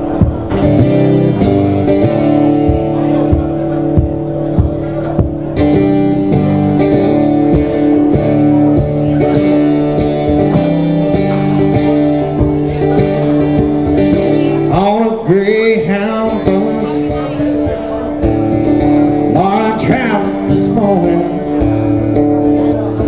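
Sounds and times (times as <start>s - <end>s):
acoustic guitar strumming: 0.0s - 23.0s
man singing: 14.3s - 23.0s.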